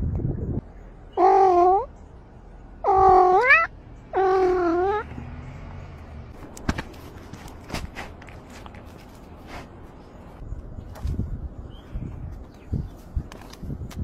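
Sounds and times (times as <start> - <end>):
cat meowing: 2.8 - 5.1.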